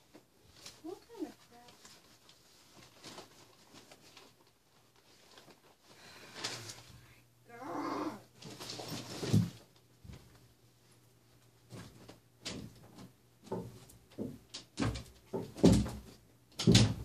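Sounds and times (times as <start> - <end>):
objects knocking and clattering: 11.7 - 17.0.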